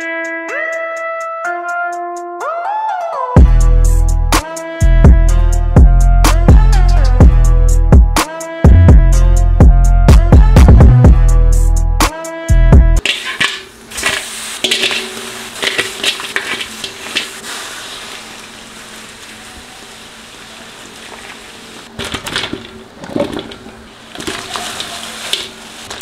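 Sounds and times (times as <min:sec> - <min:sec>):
crab shells clattering in metal wok: 0:13.0 - 0:17.5, 0:21.9 - 0:26.0.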